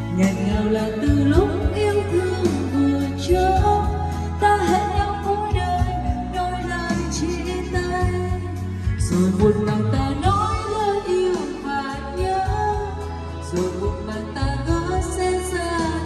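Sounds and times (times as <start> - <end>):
karaoke backing track: 0.0 - 16.0
woman singing into a microphone: 0.0 - 16.0.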